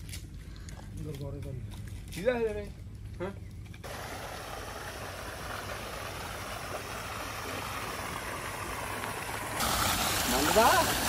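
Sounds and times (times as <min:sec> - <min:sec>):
water gushing from a pipe: 0:03.8 - 0:11.0.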